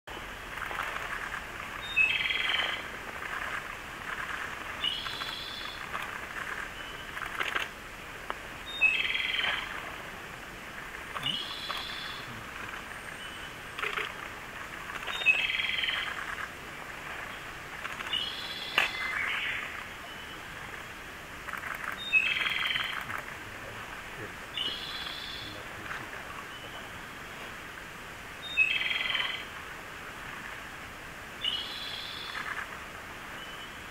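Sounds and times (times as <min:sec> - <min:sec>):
bird singing with rattling trill: 0:01.2 - 0:02.8, 0:04.1 - 0:07.6, 0:15.0 - 0:16.5, 0:21.6 - 0:23.0, 0:28.4 - 0:29.4.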